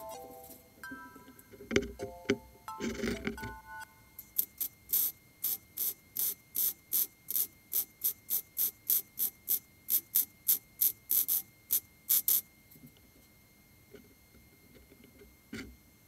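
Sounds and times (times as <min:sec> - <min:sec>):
welder arc crackling: 0:04.2 - 0:12.4.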